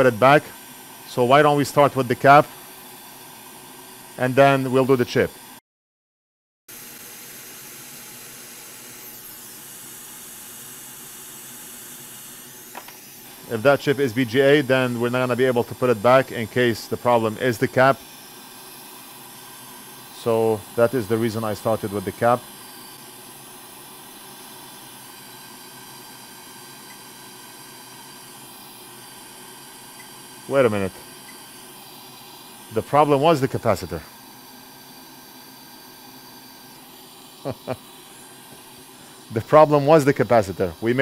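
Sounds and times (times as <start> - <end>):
hot air station hissing: 0.0 - 5.6, 6.7 - 41.0.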